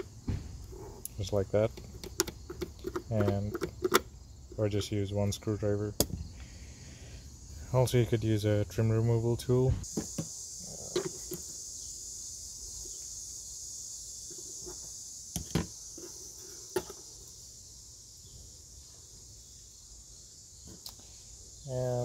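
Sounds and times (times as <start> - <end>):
high insect chirring: 0.0 - 22.0.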